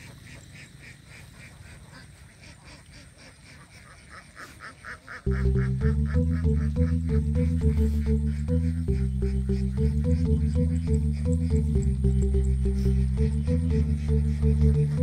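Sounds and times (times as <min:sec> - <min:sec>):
ducks quacking: 0:00.0 - 0:15.0
electronic music with steady beat: 0:05.3 - 0:15.0.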